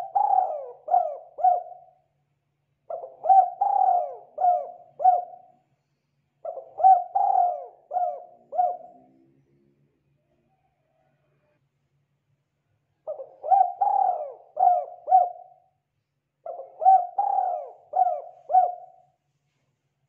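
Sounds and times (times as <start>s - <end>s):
dove cooing: 0.0s - 2.0s, 2.9s - 5.5s, 6.4s - 9.2s, 13.0s - 15.7s, 16.4s - 19.1s.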